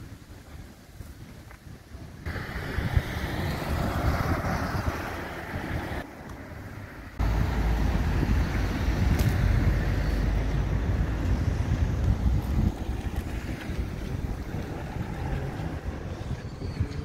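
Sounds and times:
wind buffeting microphone: 0.0 - 17.0
deep rumble: 7.2 - 17.0.

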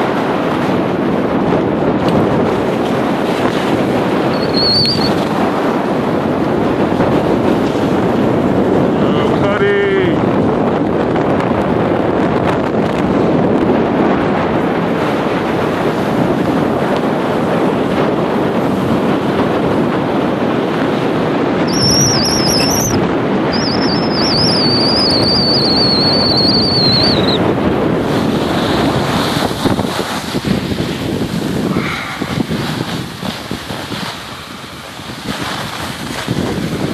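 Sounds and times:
wind rushing over microphone: 0.0 - 36.9
high wavering whistle: 4.3 - 5.2, 21.7 - 27.4
snowboard scraping snow: 28.0 - 36.9.

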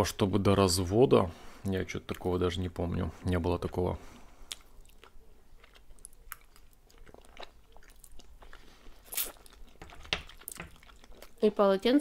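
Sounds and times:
people chewing food: 2.0 - 11.6.

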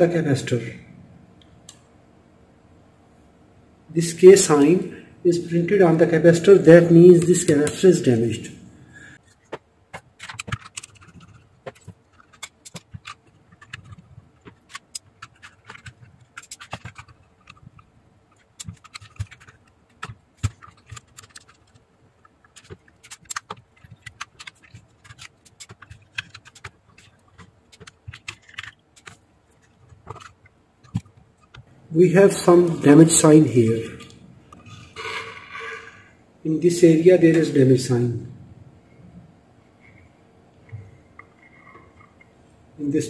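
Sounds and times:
metal case clicks and knocks: 9.4 - 21.8, 22.4 - 31.7
screwdriver on metal: 10.0 - 21.8.

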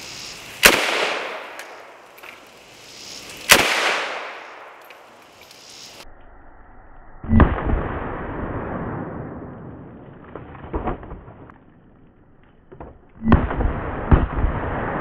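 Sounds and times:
rifle shots with echo: 0.6 - 1.9, 3.5 - 4.8.

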